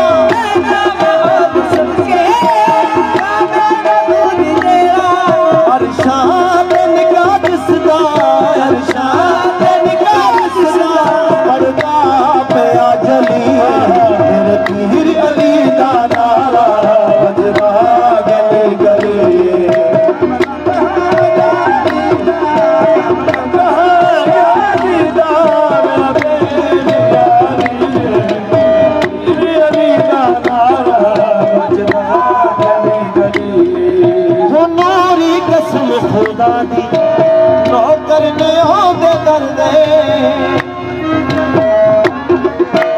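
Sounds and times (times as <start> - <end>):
harmonium: 0.0 - 42.9
men singing: 0.0 - 42.9
rhythmic percussion: 0.0 - 42.9
hand clapping: 6.6 - 12.6, 13.2 - 13.9, 17.5 - 30.7, 40.5 - 42.9.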